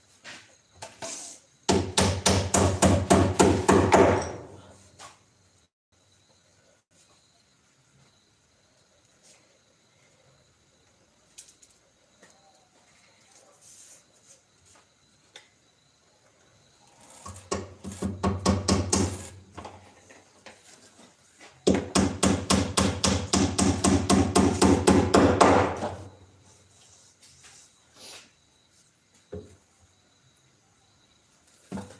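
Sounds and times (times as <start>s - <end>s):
tool knocking on wood: 1.7s - 4.5s, 17.5s - 19.2s, 21.6s - 26.1s.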